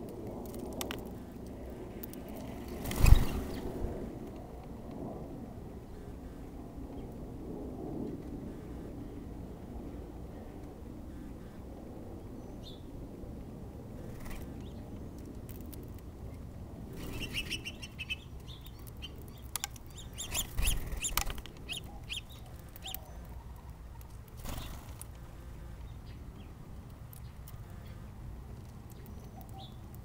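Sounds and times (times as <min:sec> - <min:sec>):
bird wings fluttering: 0:02.4 - 0:04.0, 0:14.0 - 0:14.6, 0:20.2 - 0:21.9, 0:24.1 - 0:25.1
birds chirping: 0:16.9 - 0:24.9, 0:28.9 - 0:30.0.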